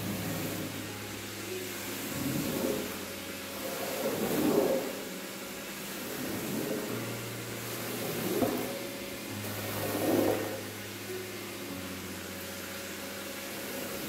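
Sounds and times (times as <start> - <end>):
squeegee swishing water from rug: 0.0 - 11.0
low steady hum: 0.0 - 14.0.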